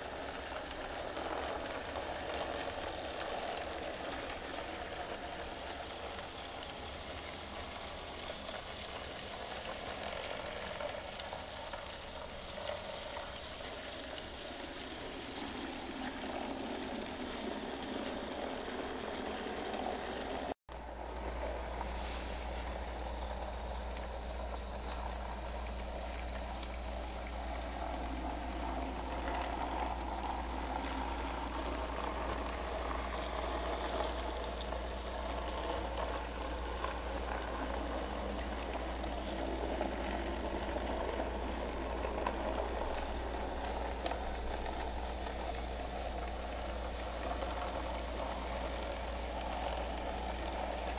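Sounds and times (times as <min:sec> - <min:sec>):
model train motor whine: 0:00.0 - 0:50.9
steady low hum: 0:00.0 - 0:50.9.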